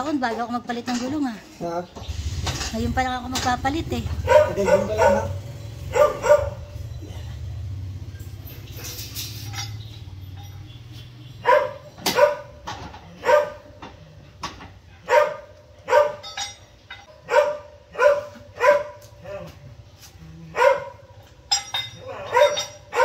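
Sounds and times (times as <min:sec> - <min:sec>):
dog barking: 0:04.2 - 0:06.9, 0:11.4 - 0:13.8, 0:15.0 - 0:16.5, 0:17.2 - 0:19.6, 0:20.5 - 0:21.3, 0:21.9 - 0:23.0.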